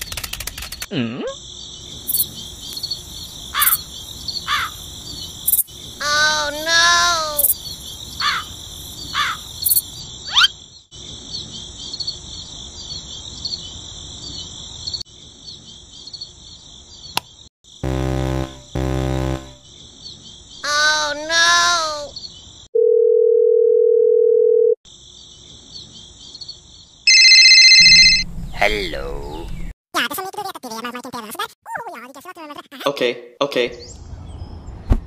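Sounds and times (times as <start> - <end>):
crickets chirping: 1.3 - 17.9, 24.9 - 26.9
short falling bird calls: 3.5 - 5.3, 8.1 - 9.5.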